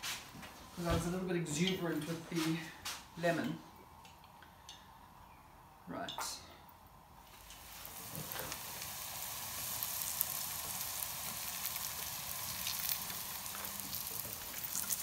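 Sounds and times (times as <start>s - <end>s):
food sizzling in hot oil: 7.2s - 15.0s.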